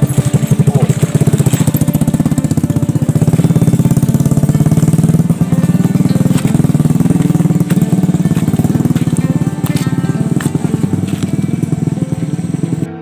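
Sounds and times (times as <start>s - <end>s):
small motorcycle engine running: 0.0s - 13.0s.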